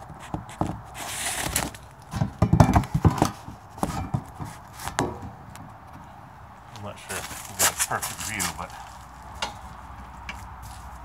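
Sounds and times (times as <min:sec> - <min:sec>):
clunks and knocks from car wheel: 0:02.1 - 0:05.7.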